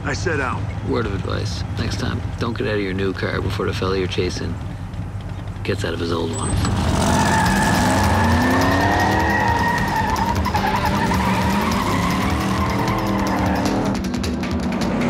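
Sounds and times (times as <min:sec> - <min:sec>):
car engine revving: 0:00.0 - 0:15.0
tyres squealing: 0:05.2 - 0:14.0
background music: 0:06.9 - 0:15.0.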